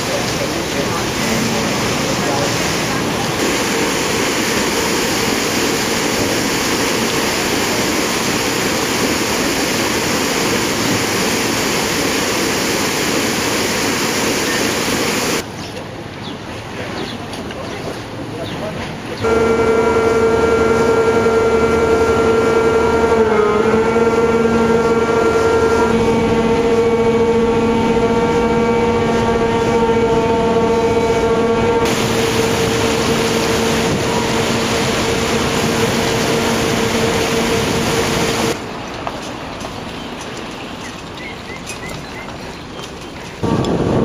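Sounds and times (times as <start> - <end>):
ship machinery droning: 0.0 - 15.4, 19.2 - 38.6
water rushing along hull: 0.0 - 44.0
wind and water wash: 0.0 - 44.0.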